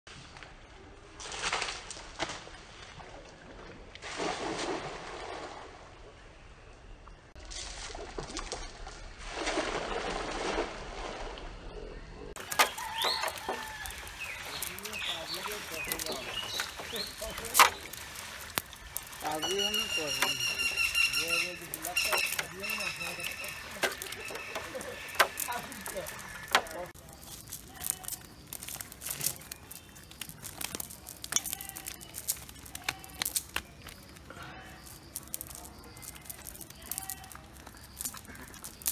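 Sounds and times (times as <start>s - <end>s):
net splashing onto water: 4.0s - 5.9s, 7.5s - 11.3s, 12.4s - 33.6s
birds calling: 11.9s - 38.9s
fish flapping and slapping: 12.4s - 38.9s.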